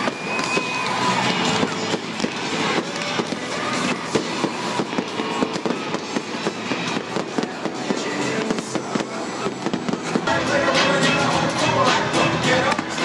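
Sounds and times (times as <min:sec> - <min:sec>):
pyrotechnics crackling and popping: 0:00.0 - 0:10.4
loud music: 0:00.0 - 0:13.0.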